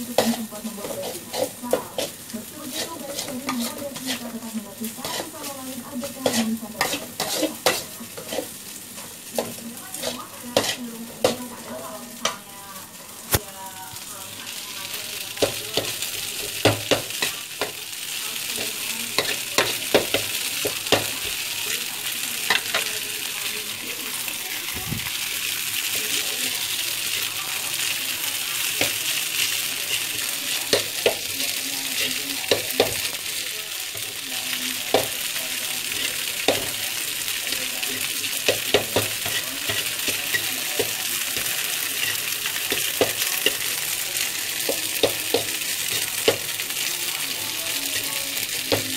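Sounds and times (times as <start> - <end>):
utensil clacking against a wok: 0.0 - 12.5, 15.3 - 23.0, 27.0 - 48.9
noodles sizzling in a wok: 0.0 - 48.9.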